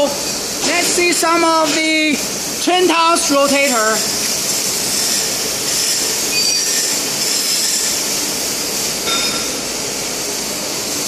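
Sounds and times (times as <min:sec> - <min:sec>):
high-pitched squeaks: 0:05.0 - 0:08.0.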